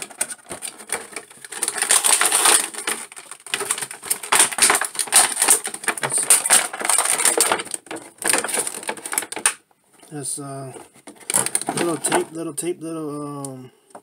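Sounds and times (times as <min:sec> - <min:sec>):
plastic packaging crackling: 0:00.0 - 0:13.6.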